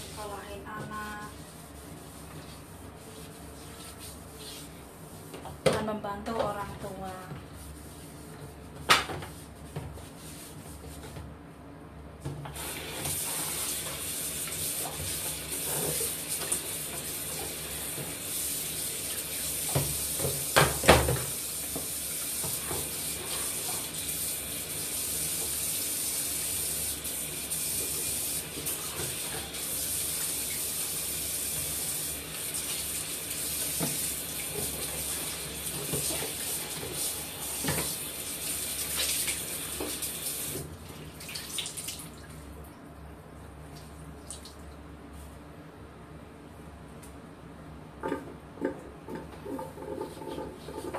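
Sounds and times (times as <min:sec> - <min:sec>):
tap running into washbasin: 0:12.4 - 0:42.3.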